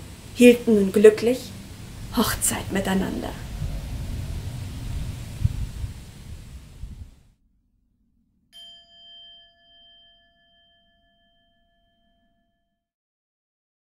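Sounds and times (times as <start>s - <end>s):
outdoor background hiss: 0.0s - 7.3s
bell-like chime ringing: 8.6s - 12.8s.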